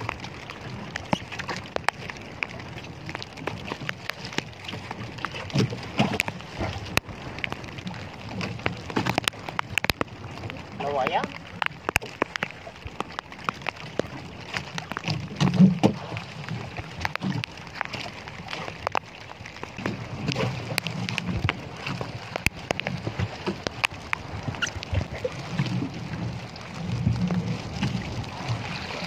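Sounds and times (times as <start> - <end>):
raindrops ticking: 0.0 - 29.0
water sloshing against boat: 0.0 - 29.0.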